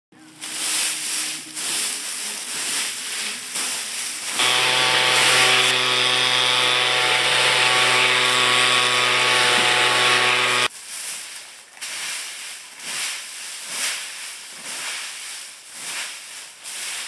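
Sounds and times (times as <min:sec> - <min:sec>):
leaves crunching underfoot: 0:00.2 - 0:04.4, 0:10.7 - 0:17.0
leaf blower running: 0:00.4 - 0:10.7.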